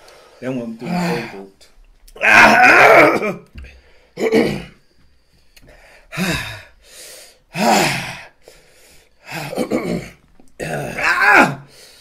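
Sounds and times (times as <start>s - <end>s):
falling groan: 2.2s - 3.5s, 9.5s - 11.7s
men gasping and blowing breaths: 3.4s - 10.6s.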